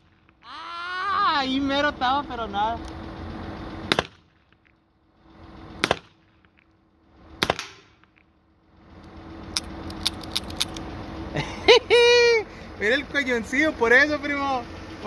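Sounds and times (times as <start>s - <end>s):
revolver shots: 3.9s - 4.3s, 5.8s - 6.6s, 7.4s - 8.2s.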